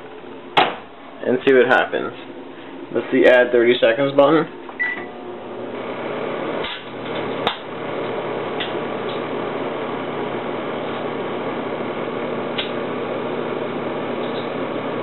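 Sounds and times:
microwave oven humming: 0.0 - 15.0
sharp snap: 6.6 - 7.7, 12.6 - 12.8.

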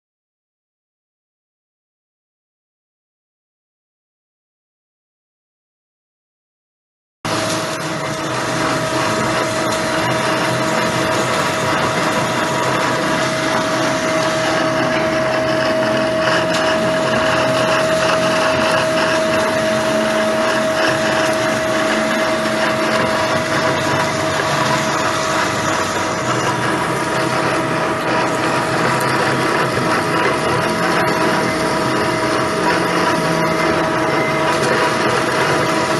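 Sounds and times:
band saw cutting steel bar: 7.3 - 35.9.

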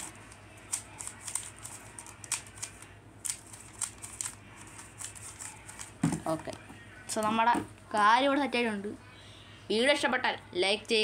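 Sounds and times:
plastic puzzle cube clicking: 0.7 - 5.9.

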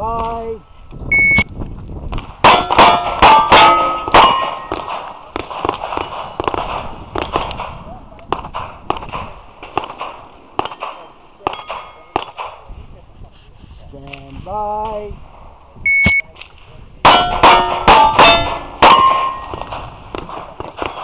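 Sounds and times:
pistol shots: 2.1 - 12.7, 17.1 - 21.0
bullets clanging on steel plate: 2.4 - 7.8, 8.5 - 12.6, 17.1 - 21.0.

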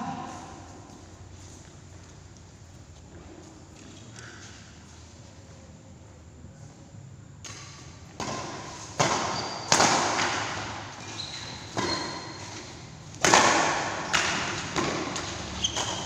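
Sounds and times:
rackets hitting shuttlecock: 7.4 - 16.0
shoes squeaking on court: 8.5 - 13.2, 13.8 - 16.0.

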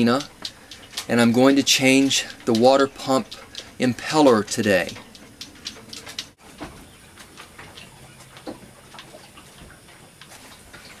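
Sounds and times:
faint clicks and ticks: 0.0 - 6.4.

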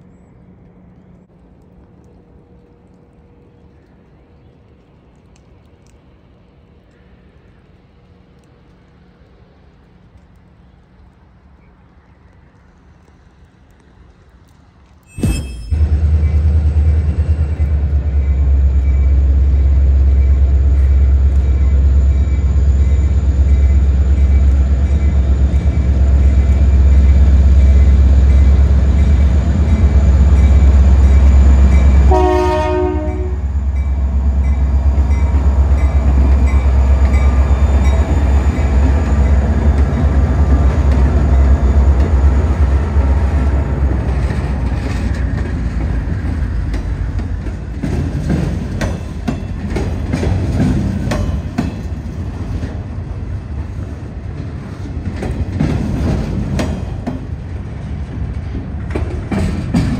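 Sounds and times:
diesel locomotives rumbling: 0.0 - 59.9
train wheel noise: 15.1 - 59.9
train horn blast: 29.6 - 38.8.

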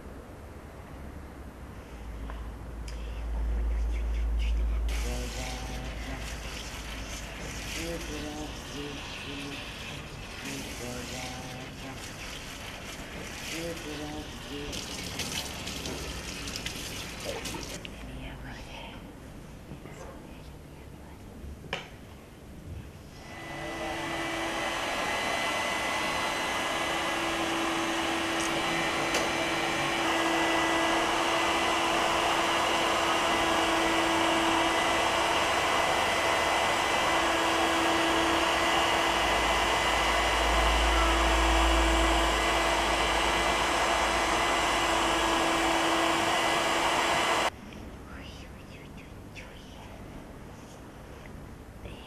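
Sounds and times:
blow dryer whirring: 23.2 - 47.6.

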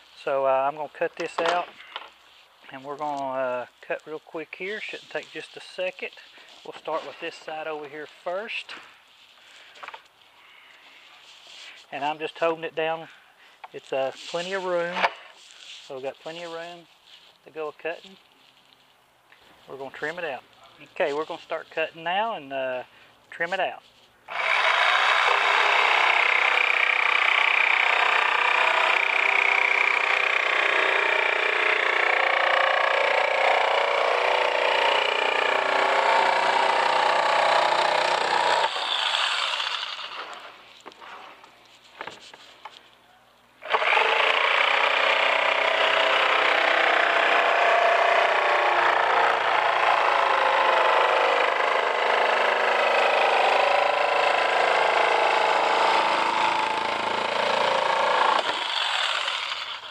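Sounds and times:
electric jigsaw cutting plastic: 24.3 - 40.6, 43.6 - 59.9.

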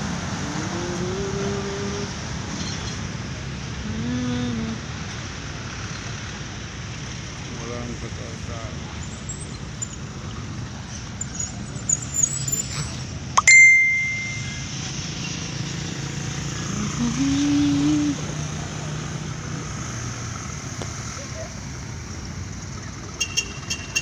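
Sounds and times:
distant traffic hum: 0.0 - 24.0
small bell ringing: 13.4 - 14.9.

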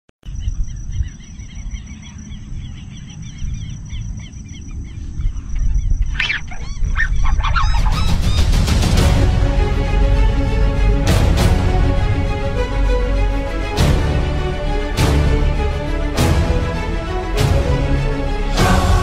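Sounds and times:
animal chirps: 0.3 - 8.5
harsh animal calls: 2.8 - 8.6.

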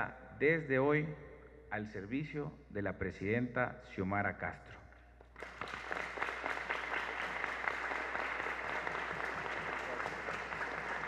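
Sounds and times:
crowd applauding: 5.4 - 11.0.

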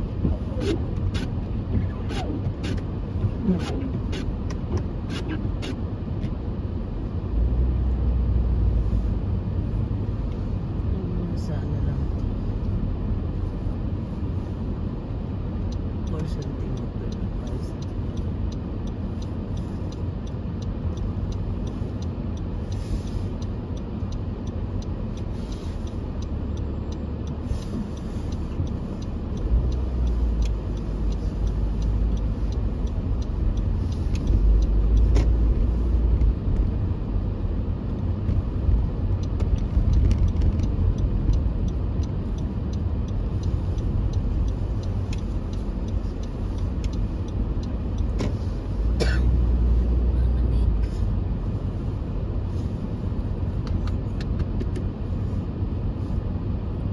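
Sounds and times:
car engine and tyre rumble: 0.0 - 56.9
faint ticks: 15.6 - 36.8, 37.4 - 51.5.

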